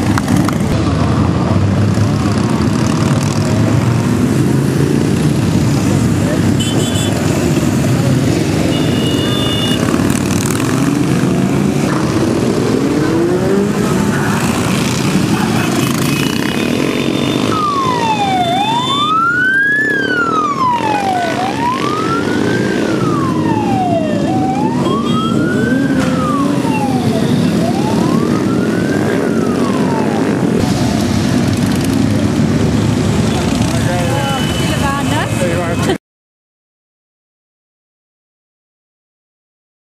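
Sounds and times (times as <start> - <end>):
motorcycle engines running: 0.0 - 36.0
wailing siren: 10.8 - 30.8.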